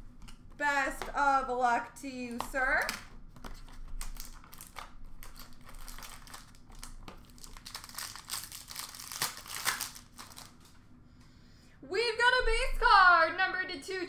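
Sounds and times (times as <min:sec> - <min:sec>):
shiny wrapper crinkling: 0:03.4 - 0:10.8.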